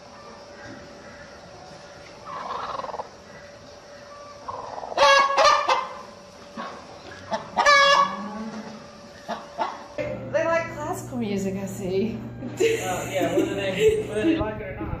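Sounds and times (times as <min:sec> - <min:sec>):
hen squawking: 0:02.2 - 0:03.2, 0:04.4 - 0:06.0, 0:06.6 - 0:08.2.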